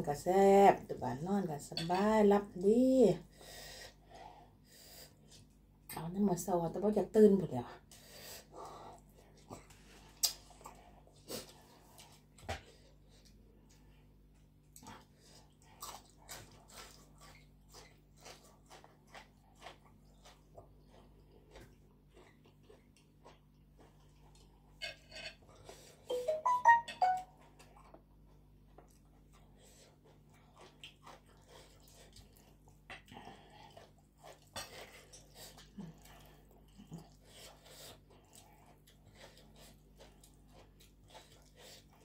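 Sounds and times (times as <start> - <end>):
chewing crisp vegetable: 7.8 - 26.3, 27.4 - 42.0
pitched voice-like notes: 26.1 - 27.3.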